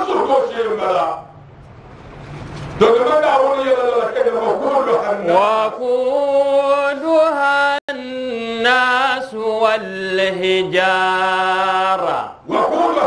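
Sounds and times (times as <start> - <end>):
man chanting recitation: 2.8 - 13.0.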